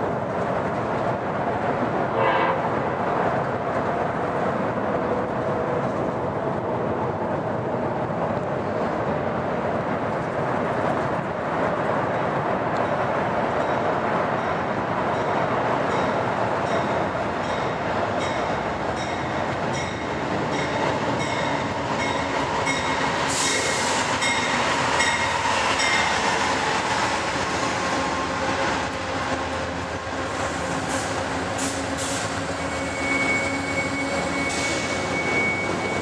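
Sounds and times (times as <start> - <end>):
diesel locomotive passing: 0.0 - 36.0
high wheel squeal: 31.0 - 36.0.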